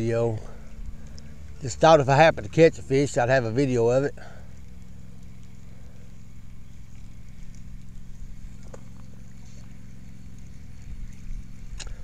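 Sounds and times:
fishing reel whirring: 0.0s - 12.0s
low hum: 0.0s - 12.0s
faint reel clicks: 11.1s - 12.0s.

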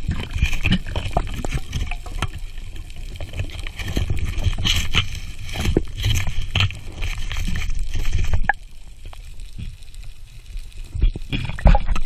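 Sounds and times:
underwater clicks and crackles: 0.0s - 12.0s
underwater rumble of moving water: 0.0s - 12.0s.

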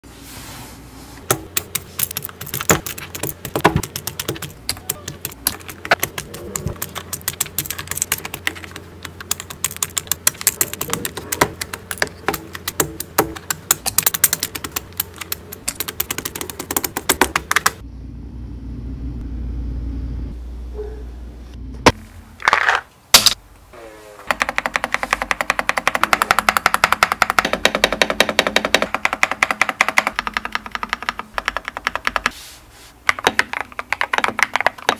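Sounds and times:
mechanical keyboard typing: 1.3s - 17.8s, 24.3s - 32.3s, 33.1s - 34.9s.

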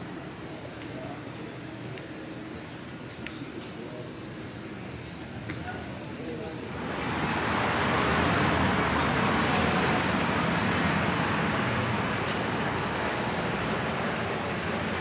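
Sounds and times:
motor vehicle rushing: 6.7s - 15.0s.

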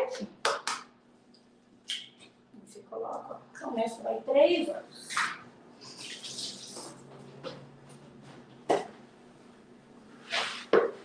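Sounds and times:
kitchen tap running: 5.9s - 7.1s.

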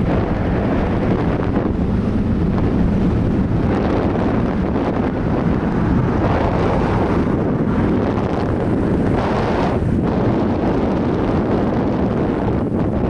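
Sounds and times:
car passing: 0.0s - 12.0s
wind buffeting microphone: 0.0s - 13.0s.

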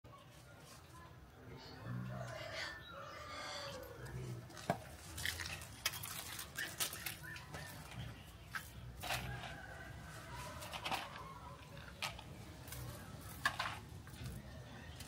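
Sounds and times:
footsteps on dry leaves and wood: 4.5s - 11.2s.

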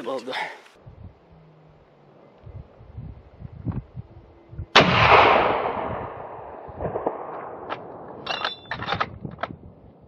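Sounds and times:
gunshot echo: 4.8s - 8.2s.

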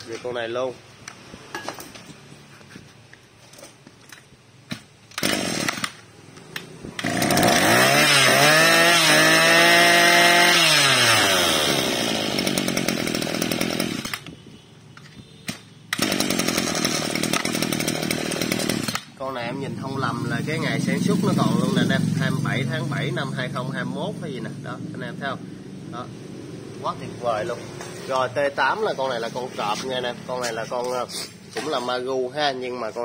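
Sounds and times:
brush-cutter engine revving: 5.1s - 14.3s, 15.9s - 19.2s.

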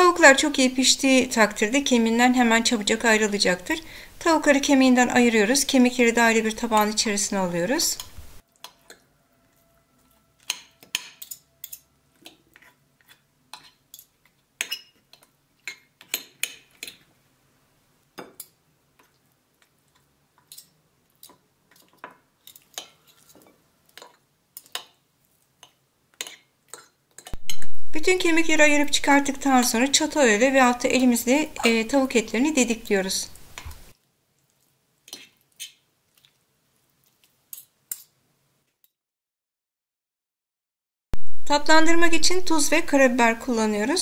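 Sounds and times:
forks scraping glass dish: 10.0s - 11.9s.

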